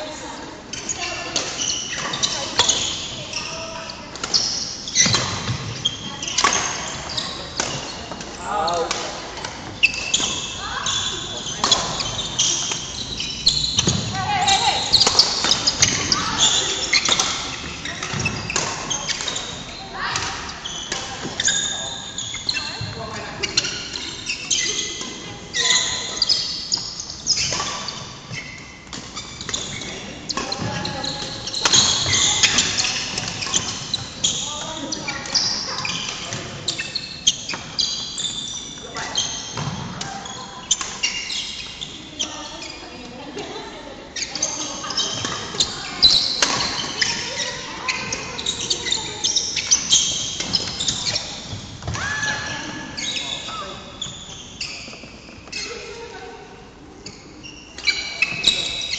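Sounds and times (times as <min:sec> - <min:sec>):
shoes squeaking on wooden floor: 0:00.0 - 0:58.9
racket hitting shuttlecock: 0:04.1 - 0:10.5, 0:11.5 - 0:13.0, 0:14.9 - 0:19.5, 0:28.8 - 0:34.2, 0:44.4 - 0:53.2.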